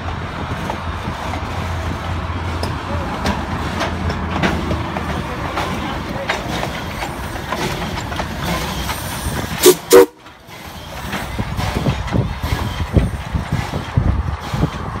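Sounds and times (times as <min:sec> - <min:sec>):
train rumbling: 0:00.0 - 0:15.0
steam whistle toots: 0:09.6 - 0:10.2.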